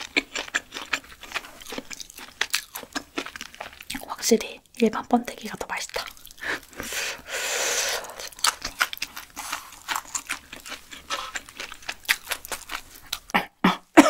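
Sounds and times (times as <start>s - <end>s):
wet chewing mouth sounds: 0.0s - 7.0s, 7.6s - 13.9s
loud breathy hiss: 6.8s - 8.2s.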